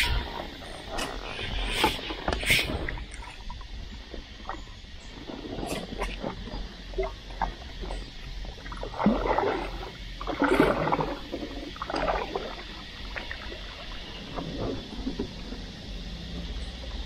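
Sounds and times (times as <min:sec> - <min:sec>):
paddle strokes splashing water: 0:00.0 - 0:17.0.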